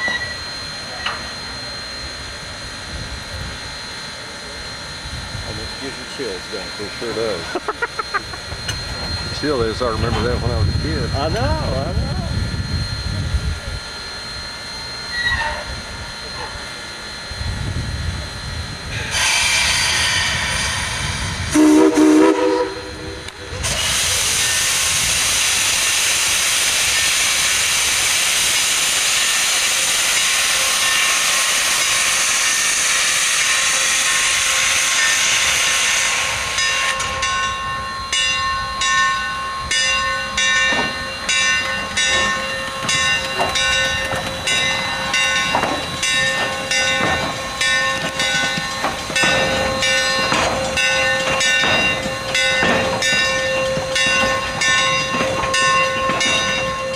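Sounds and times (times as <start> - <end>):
steam locomotive exhaust chuffs: 0.0 - 56.9
steam hissing: 18.2 - 37.9, 39.3 - 56.9
steam whistle blast: 19.2 - 23.3.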